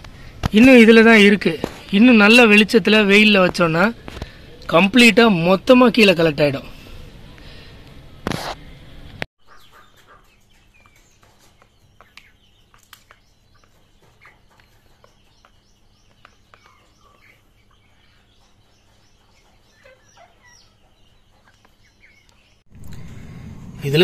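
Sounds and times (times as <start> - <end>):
chickens clucking faintly: 9.4 - 24.0
beaks tapping plastic tray: 10.5 - 17.4.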